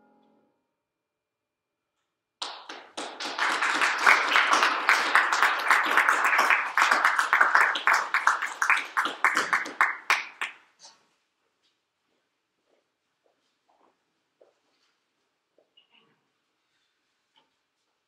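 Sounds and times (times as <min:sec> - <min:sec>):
audience applause: 0:02.4 - 0:10.5.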